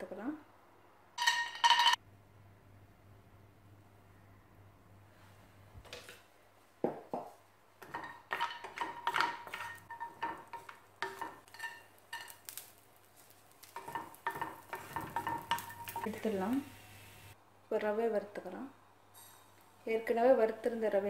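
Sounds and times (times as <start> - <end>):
spatula scraping a pan: 7.8 - 16.1
nuts frying in fat: 7.8 - 17.4.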